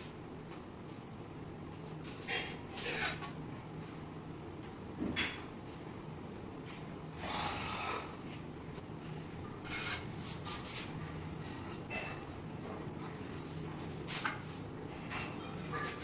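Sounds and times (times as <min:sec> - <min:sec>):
hand tool scraping on stone: 0:09.6 - 0:10.9.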